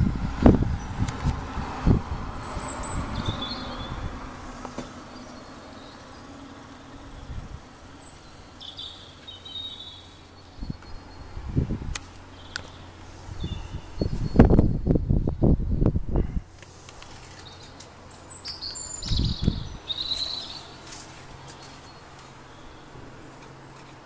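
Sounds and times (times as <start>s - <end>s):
low rumble: 0.0s - 4.6s
faint bird chirps: 8.0s - 11.4s, 17.4s - 20.8s.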